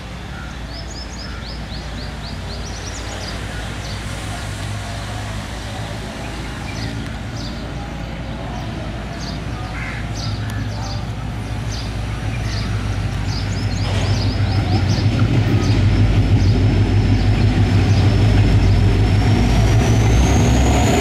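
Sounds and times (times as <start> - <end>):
diesel locomotive engine: 0.0 - 21.0
small birds chirping: 0.2 - 4.3, 6.2 - 18.8.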